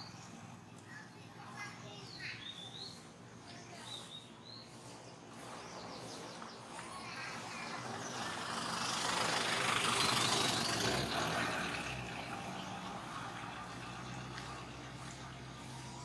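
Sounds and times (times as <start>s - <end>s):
vehicle passing: 0.0s - 16.0s.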